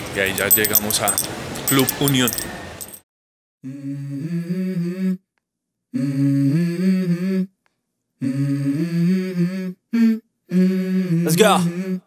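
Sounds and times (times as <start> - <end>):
wordless hummed vocal: 3.6 - 5.2, 5.9 - 7.5, 8.2 - 12.0.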